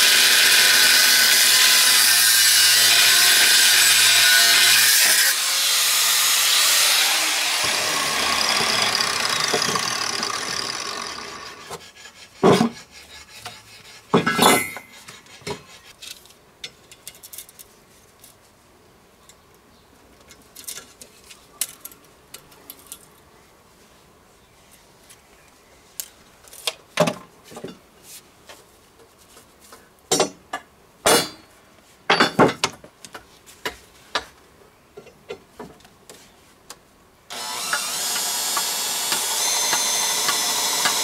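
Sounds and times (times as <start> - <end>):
power tool whine winding down: 7.0 - 11.6, 37.3 - 41.0.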